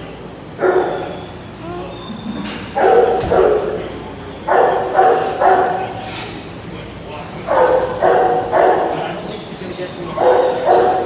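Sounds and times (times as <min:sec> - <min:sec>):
dog barking: 0:00.6 - 0:01.2, 0:02.8 - 0:06.0, 0:07.5 - 0:09.2, 0:10.1 - 0:11.0.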